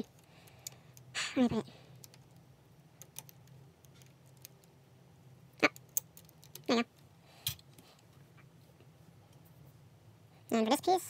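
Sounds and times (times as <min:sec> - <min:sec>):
plastic puzzle pieces clicking: 0:03.0 - 0:04.7, 0:05.7 - 0:06.7.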